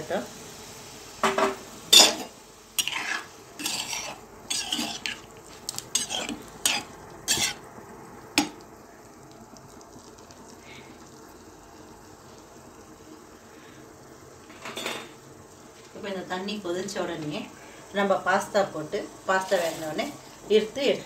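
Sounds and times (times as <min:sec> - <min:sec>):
faint steady hiss: 0:00.0 - 0:21.0
spoon scraping and knocking pan: 0:01.2 - 0:07.6, 0:08.4 - 0:08.6
metal spoon clinking pan: 0:02.0 - 0:03.0.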